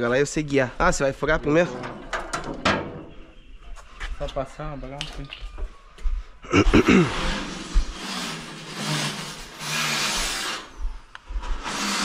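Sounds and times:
rough work noise: 6.6s - 12.0s
electric drill running: 11.6s - 12.0s.

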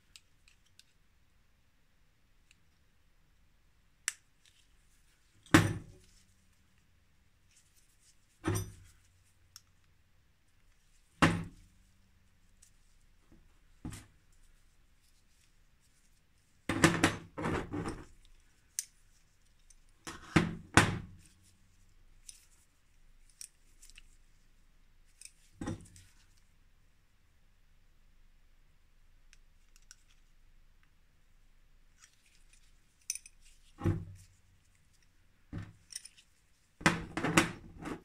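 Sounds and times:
metal parts clinking: 32.0s - 33.6s, 35.8s - 36.3s.

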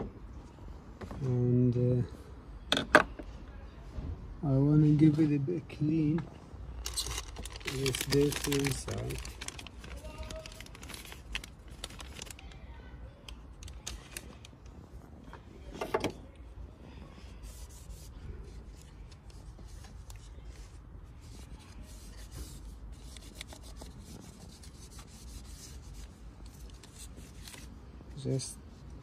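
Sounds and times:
tissue wiping plastic: 6.8s - 12.4s, 17.3s - 28.4s.

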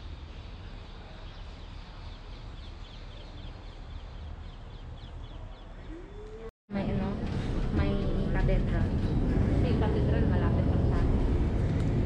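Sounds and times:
outdoor background noise: 0.0s - 12.0s
low rumble: 6.7s - 12.0s.

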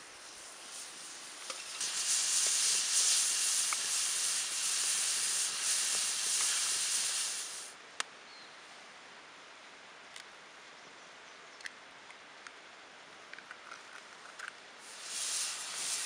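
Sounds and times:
meat sizzling on a hot plate: 0.0s - 7.7s, 14.8s - 16.0s.

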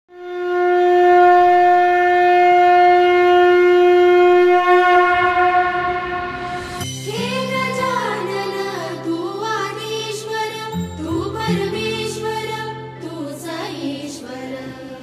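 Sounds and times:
conch shell blown: 0.1s - 6.9s.

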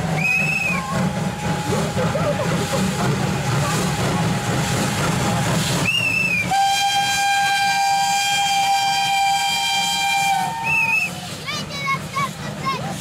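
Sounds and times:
steam whistle: 0.0s - 1.7s, 5.8s - 11.2s
steam hissing: 0.0s - 13.0s
steam locomotive passing: 0.0s - 13.0s.

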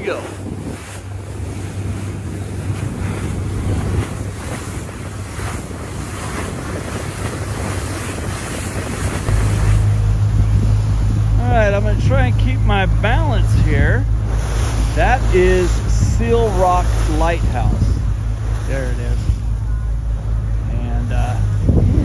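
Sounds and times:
boat engine droning: 0.0s - 22.0s
rushing sea water: 0.0s - 22.0s
wind buffeting microphone: 0.0s - 22.0s.

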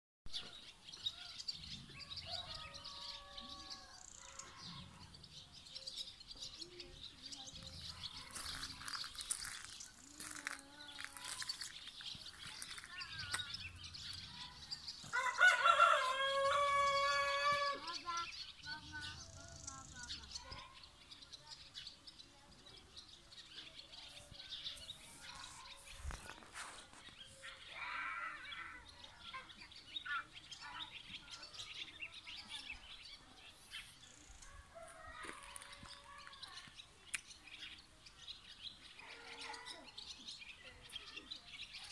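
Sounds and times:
small birds chirping: 0.3s - 41.9s
rooster crowing: 2.2s - 4.0s, 15.1s - 17.8s.

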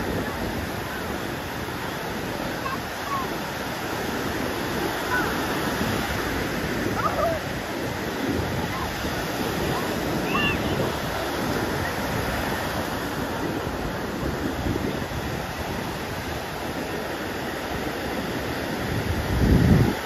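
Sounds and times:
ocean waves breaking: 0.0s - 20.0s
wind buffeting microphone: 0.0s - 20.0s.

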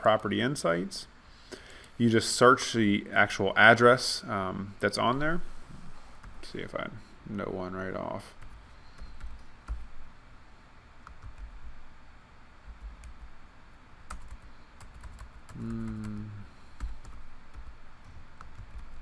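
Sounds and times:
typing on a computer keyboard: 11.0s - 11.6s, 14.1s - 19.0s
man humming: 15.5s - 16.6s.

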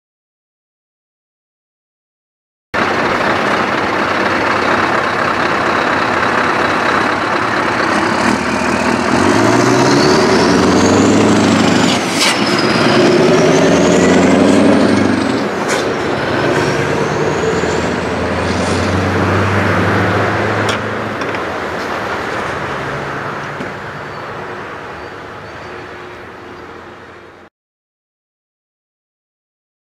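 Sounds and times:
diesel truck engine accelerating: 2.8s - 27.5s
high whistling glide: 8.0s - 19.0s.

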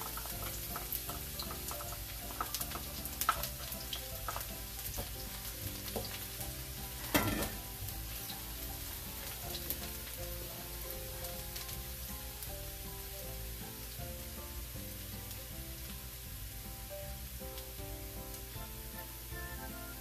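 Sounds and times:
wooden spatula stirring: 0.0s - 7.8s
garlic sizzling in hot oil: 0.0s - 20.0s.

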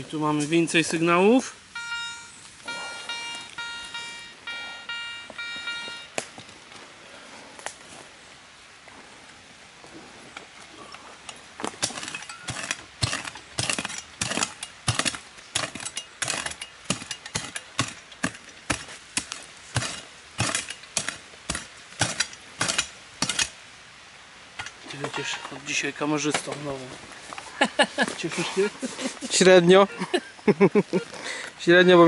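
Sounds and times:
shovel digging into soil: 11.7s - 23.6s.

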